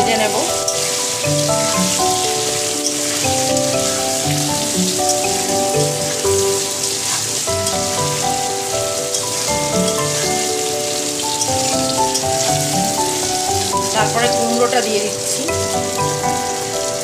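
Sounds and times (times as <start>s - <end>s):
instrumental background music: 0.0s - 17.0s
vegetables sizzling in hot oil: 0.0s - 17.0s
spatula stirring in a wok: 0.5s - 14.1s.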